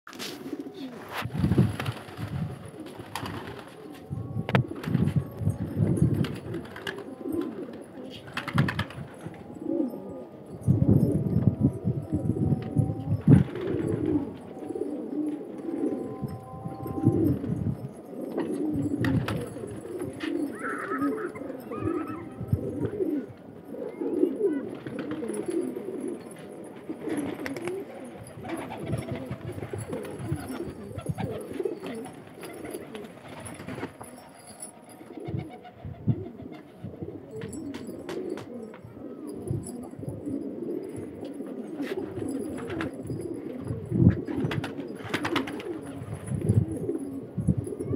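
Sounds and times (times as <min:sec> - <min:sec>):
pigeons cooing: 0:00.1 - 0:47.9.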